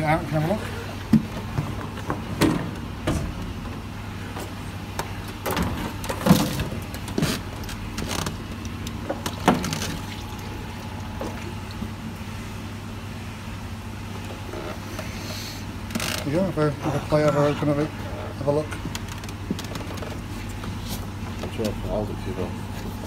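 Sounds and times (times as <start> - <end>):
steady low hum: 0.0 - 23.0
plastic pipe clunking and scraping: 1.1 - 10.1.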